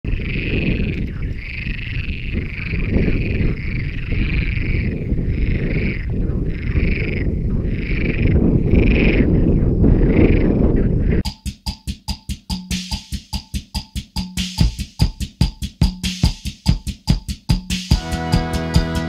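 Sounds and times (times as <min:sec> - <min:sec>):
wind rumbling on microphone: 0:00.0 - 0:11.3
frogs croaking: 0:00.1 - 0:11.2.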